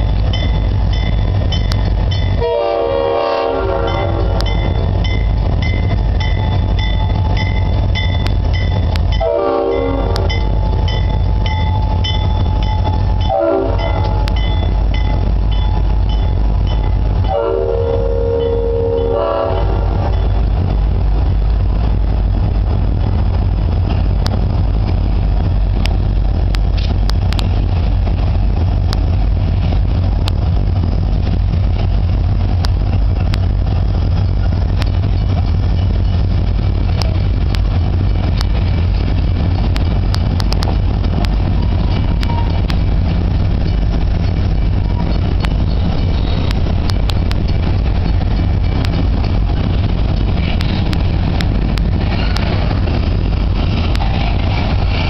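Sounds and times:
crossing bell dinging: 0.0s - 2.5s, 3.8s - 20.5s
diesel locomotive engines rumbling: 0.0s - 55.0s
train wheels clicking on rail joints: 0.0s - 55.0s
train air horn blasts: 2.4s - 4.9s, 9.2s - 10.5s, 13.2s - 14.4s, 17.3s - 20.1s.

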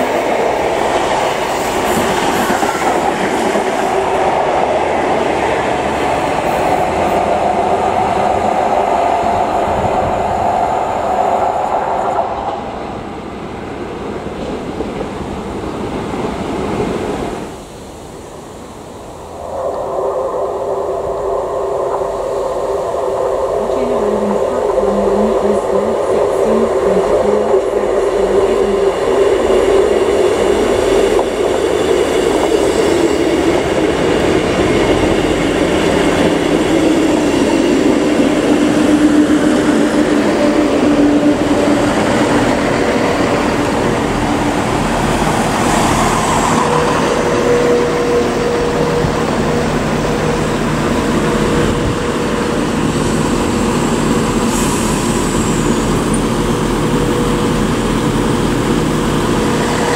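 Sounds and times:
diesel train engine drone: 0.0s - 59.9s
wheel and rail noise: 0.0s - 59.9s.

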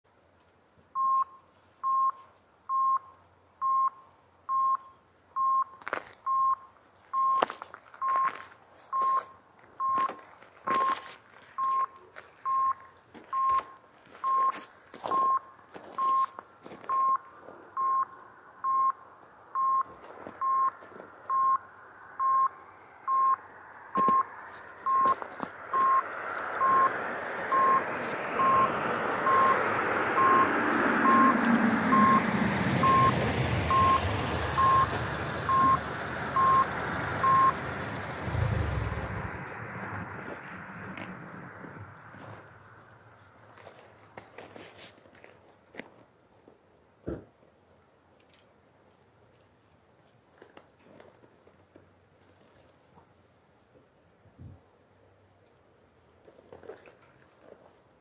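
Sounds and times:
level crossing warning beeps: 1.0s - 37.7s
train approaching: 28.4s - 42.4s.

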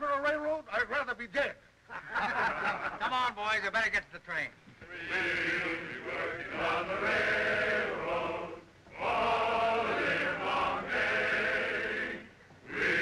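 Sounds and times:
men singing together: 4.9s - 13.0s.

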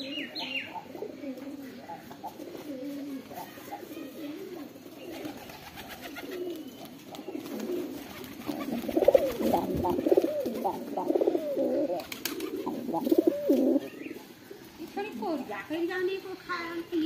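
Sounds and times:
pigeons cooing: 0.0s - 15.0s
pigeon wingbeats: 2.2s - 13.8s.

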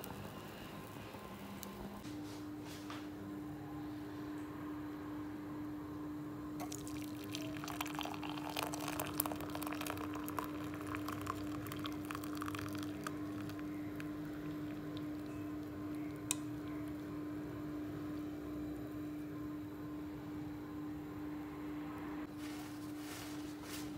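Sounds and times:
steady hum: 0.0s - 23.9s
tea pouring through strainer: 6.6s - 16.4s
liquid dripping: 6.6s - 16.5s.

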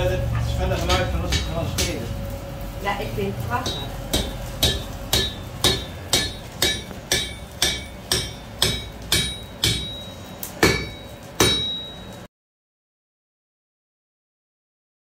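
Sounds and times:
hammer striking iron on anvil: 0.8s - 2.1s, 3.6s - 12.3s.

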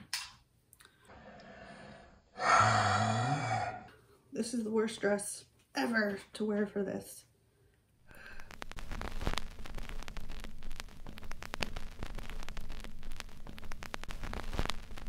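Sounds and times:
static hiss: 8.0s - 15.0s
sharp clicks and pops: 8.1s - 15.0s.

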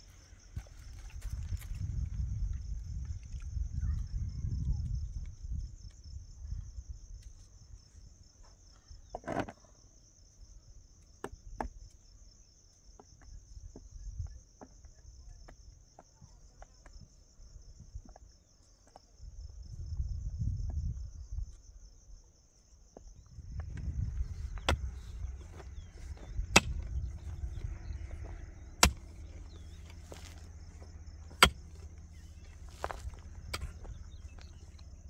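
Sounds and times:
insects chirring: 0.0s - 35.0s
low rumble: 23.2s - 35.0s.

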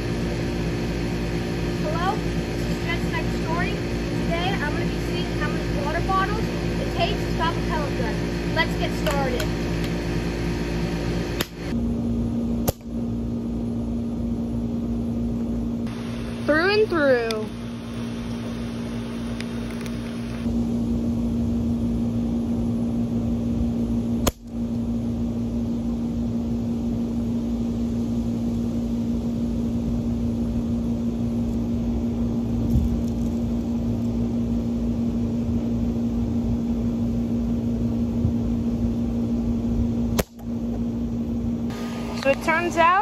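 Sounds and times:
machine hum over low rumble: 0.0s - 43.0s
sharp click: 11.4s - 11.6s.

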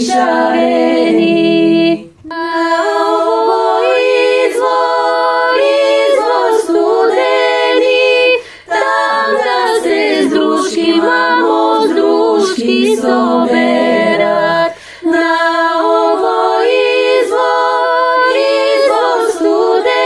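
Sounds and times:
women's choir singing a cappella: 0.0s - 20.0s.

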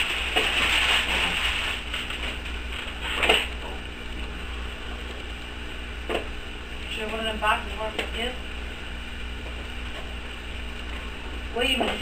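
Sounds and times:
gift wrap rustling and crinkling: 0.0s - 3.3s.

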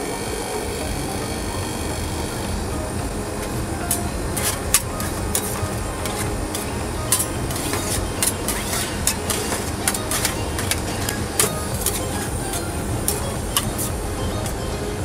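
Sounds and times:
refrigeration unit hum: 0.0s - 15.0s
metal spatulas scraping steel plate: 3.4s - 13.9s.

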